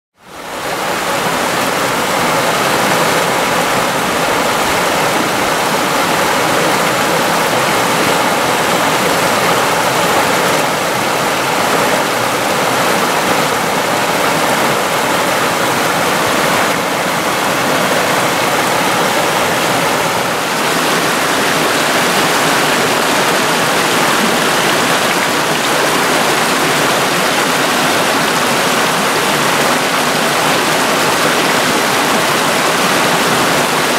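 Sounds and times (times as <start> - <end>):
water rushing over rocks: 0.2 - 33.9.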